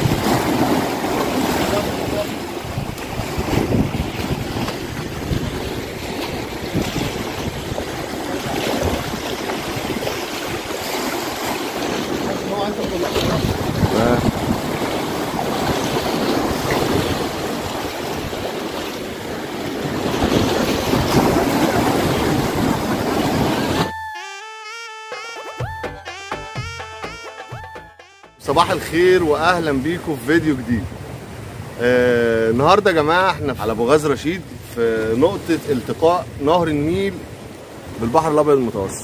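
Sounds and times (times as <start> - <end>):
waves splashing against rocks: 0.0 - 23.9, 28.4 - 39.0
wind buffeting microphone: 0.0 - 23.9
music: 23.9 - 28.5.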